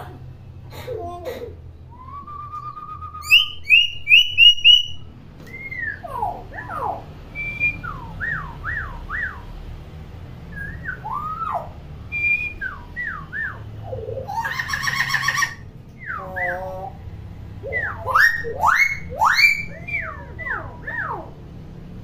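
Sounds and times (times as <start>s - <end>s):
harsh bird call: 10.6s - 21.4s.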